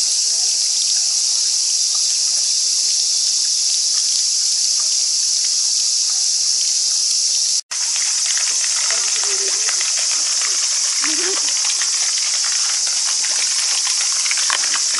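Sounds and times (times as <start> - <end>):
cicada chorus drone: 0.0 - 14.9.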